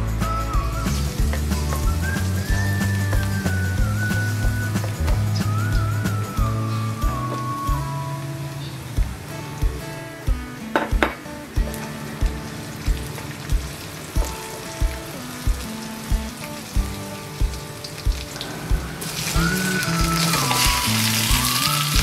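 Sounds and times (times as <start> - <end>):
food sizzling in hot oil: 0.0 - 9.5, 11.5 - 22.0
background music with steady beat: 0.0 - 22.0.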